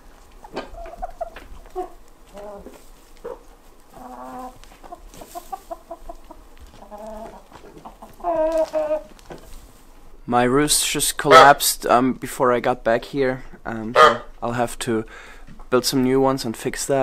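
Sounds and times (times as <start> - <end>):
chickens clucking: 0.0 - 10.2, 10.8 - 11.8, 13.2 - 14.6.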